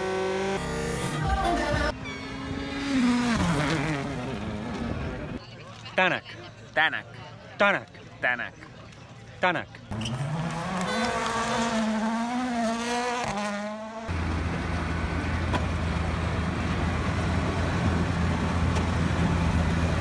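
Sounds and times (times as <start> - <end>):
diesel engine running: 14.1 - 20.0.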